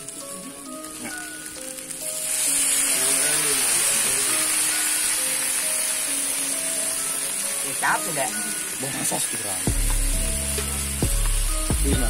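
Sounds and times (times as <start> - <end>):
background music with held notes: 0.0 - 12.0
vegetables sizzling in frying pan: 0.0 - 12.0.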